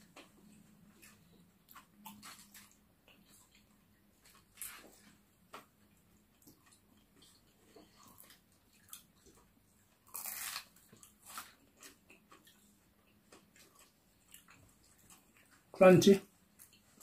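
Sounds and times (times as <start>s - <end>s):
crunching crispy food: 10.0s - 12.4s.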